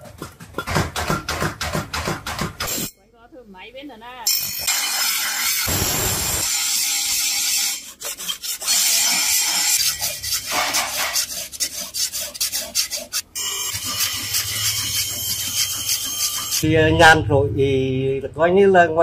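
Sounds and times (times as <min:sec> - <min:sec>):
steel scraper rasping on blade: 0:06.4 - 0:16.6.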